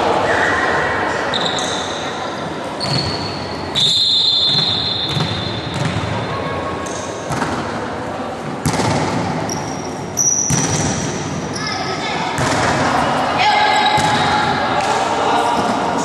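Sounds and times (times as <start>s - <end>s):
voices of players and onlookers: 0.0s - 16.0s
volleyball being hit: 4.5s - 6.1s, 8.6s - 9.4s.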